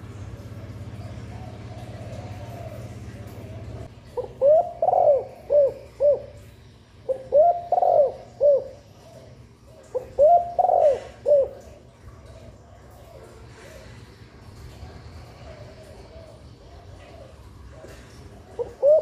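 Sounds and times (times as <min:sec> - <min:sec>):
dove cooing: 0:00.0 - 0:19.0.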